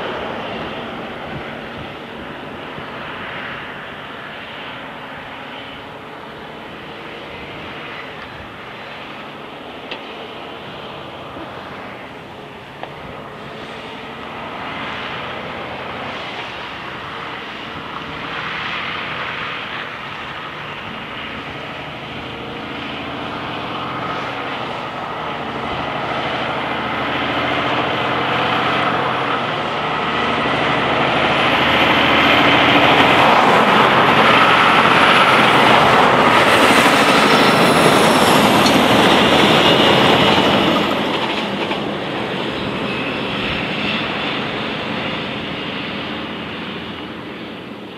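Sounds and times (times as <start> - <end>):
high whine: 0.0 - 47.9
truck diesel engine and tyres: 0.0 - 47.9.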